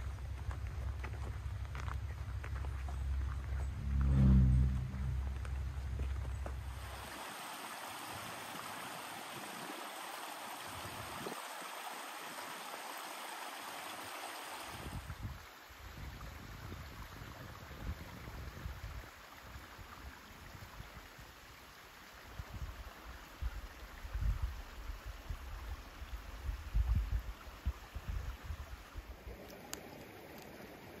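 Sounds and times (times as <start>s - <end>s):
stream running over stones: 0.0s - 3.8s, 4.7s - 31.0s
low uneven rumble: 0.0s - 7.0s.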